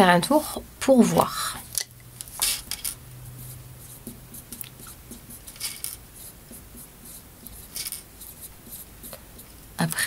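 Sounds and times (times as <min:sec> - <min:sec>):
pen scratching on paper: 0:03.4 - 0:09.6.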